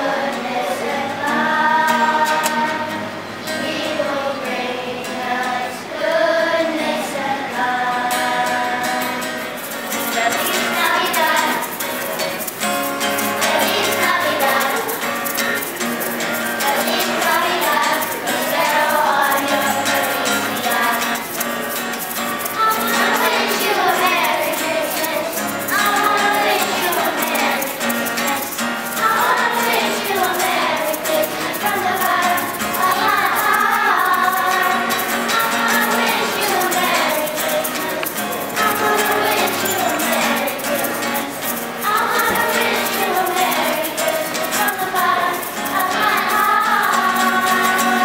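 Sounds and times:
children singing in unison: 0.0s - 48.0s
strummed acoustic guitar: 0.0s - 48.0s.

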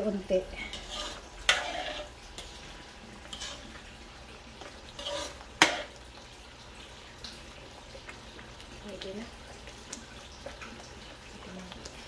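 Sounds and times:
metal spatula scraping a pan: 0.1s - 4.0s, 4.6s - 6.0s
spatula clanking on pan: 0.7s - 2.1s, 5.0s - 5.9s.

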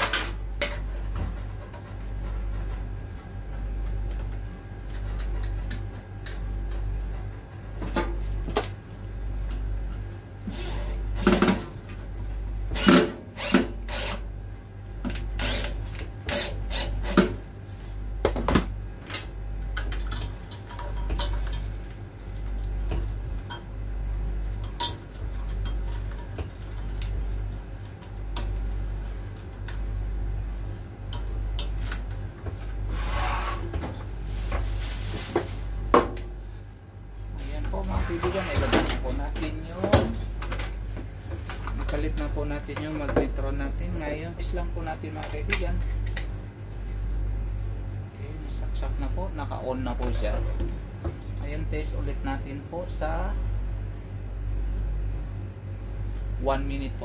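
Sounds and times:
oven scraping on bench: 32.8s - 35.5s, 37.5s - 39.1s.

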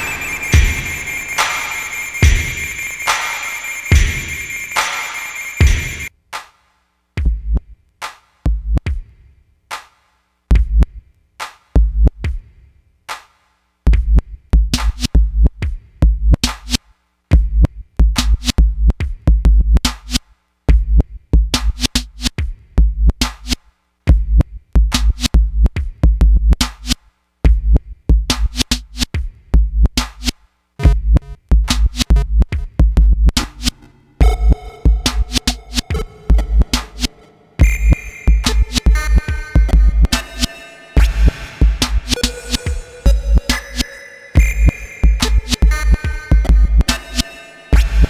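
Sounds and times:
electronic music beat: 0.0s - 6.1s, 30.8s - 48.0s
deep bass hits: 30.8s - 35.3s.

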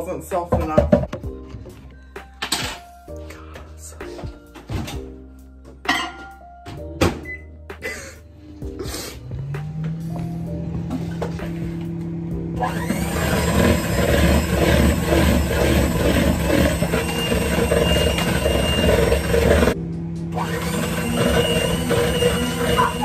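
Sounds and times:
electric hand mixer running: 9.4s - 23.0s.

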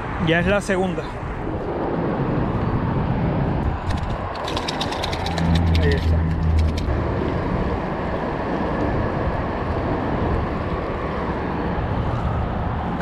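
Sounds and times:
distant traffic: 0.0s - 13.0s
wind: 0.0s - 13.0s
low hum: 1.4s - 10.9s.

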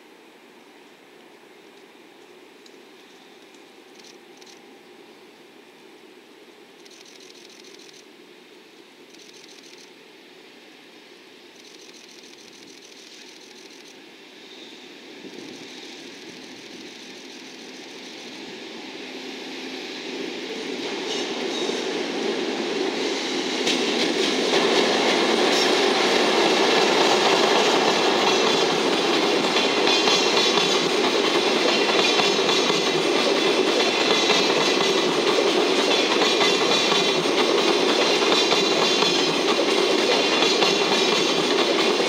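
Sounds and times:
train wheels on rails: 6.7s - 8.1s, 11.5s - 42.0s.

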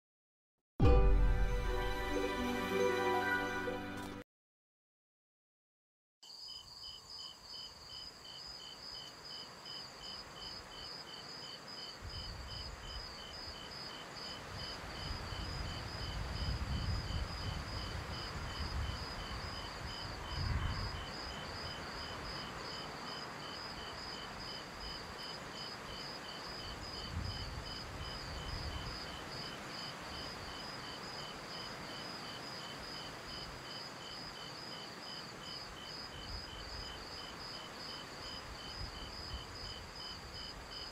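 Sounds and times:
crickets chirping: 6.2s - 40.9s.

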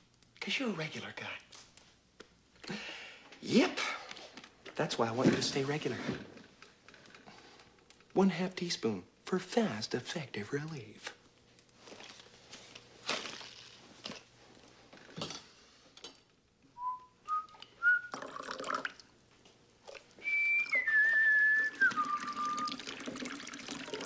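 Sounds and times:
person whistling: 16.8s - 18.2s, 20.2s - 22.8s
liquid poured into a mug: 18.1s - 19.1s, 21.7s - 24.0s.

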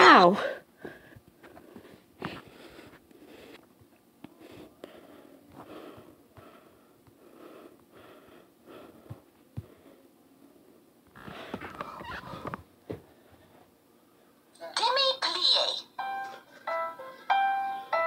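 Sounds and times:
breathing and sniffing: 0.4s - 3.6s, 4.3s - 10.1s.

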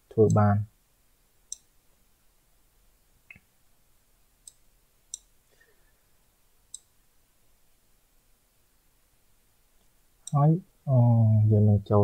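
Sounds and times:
computer mouse clicks: 4.5s - 5.3s.

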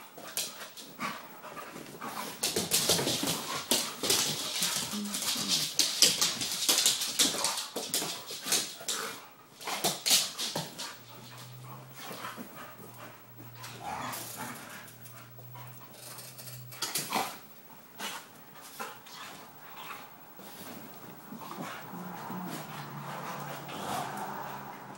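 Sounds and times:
dogs scuffling on wood floor: 0.0s - 24.9s
dog vocalisations: 4.6s - 5.8s.

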